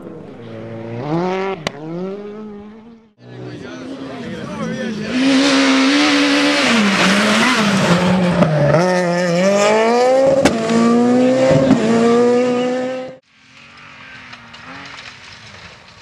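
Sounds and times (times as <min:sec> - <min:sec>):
rally car engine revving: 0:00.0 - 0:15.8
sharp cracks: 0:13.6 - 0:16.0.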